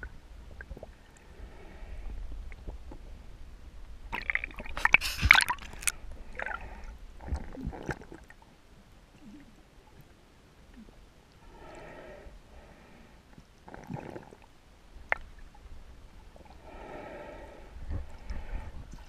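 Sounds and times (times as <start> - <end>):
faint low rumble: 0.0 - 19.0
water splashing and bubbling: 4.1 - 8.4.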